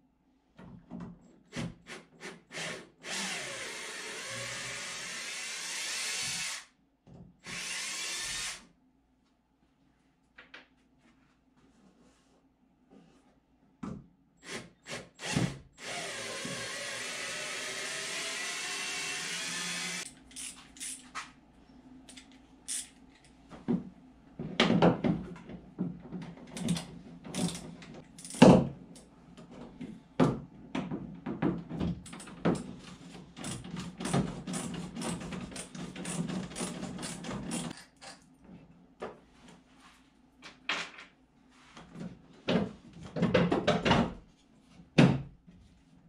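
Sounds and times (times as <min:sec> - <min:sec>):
cordless drill whine: 0:15.2 - 0:20.0
parts knocking and clattering: 0:42.4 - 0:44.2.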